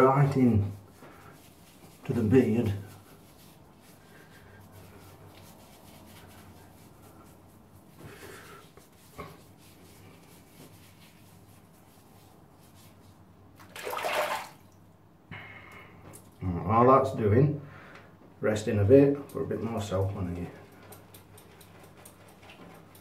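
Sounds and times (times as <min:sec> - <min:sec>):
fingers rubbing lather into beard: 0:00.0 - 0:13.3, 0:19.2 - 0:23.0
running water splash: 0:13.6 - 0:14.8.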